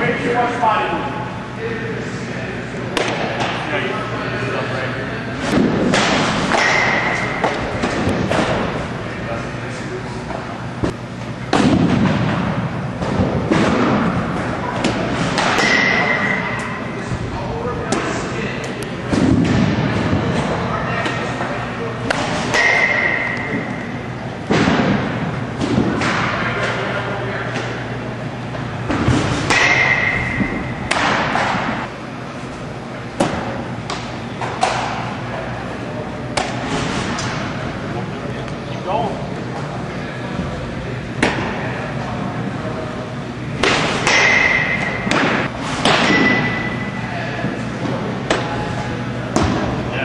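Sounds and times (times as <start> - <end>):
loud rush of background noise: 0.0 - 50.0
baseballs smacking into mitts: 36.3 - 36.6.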